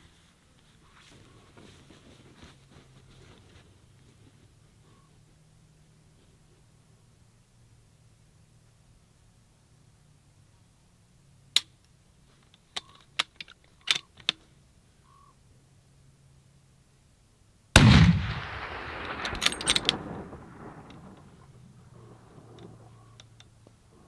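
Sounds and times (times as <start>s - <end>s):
rifle shot with echo: 17.8s - 22.8s
sharp clicks: 18.2s - 21.3s.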